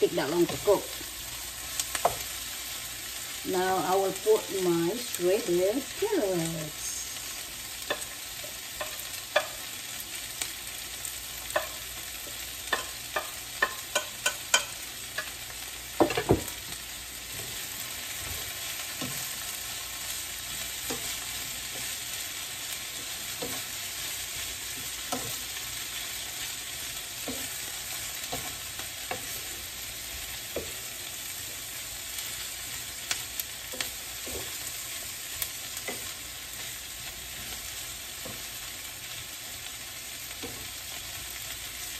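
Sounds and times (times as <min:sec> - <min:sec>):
vegetables sizzling in oil: 0:00.0 - 0:41.9
spatula tapping and scraping pan: 0:01.8 - 0:02.4, 0:07.8 - 0:10.4, 0:11.0 - 0:39.4.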